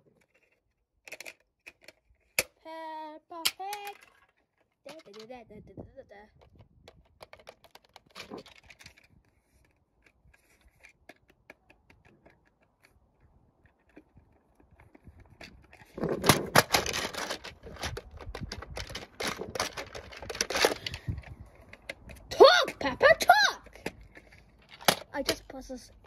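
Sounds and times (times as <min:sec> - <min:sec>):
plastic toy phone buttons clicking: 0:03.4 - 0:04.1.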